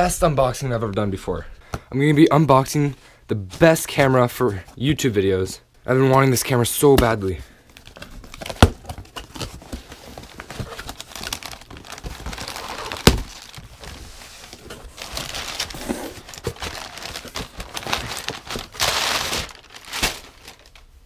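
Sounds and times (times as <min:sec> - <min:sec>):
packing paper crinkling: 0:07.7 - 0:21.0.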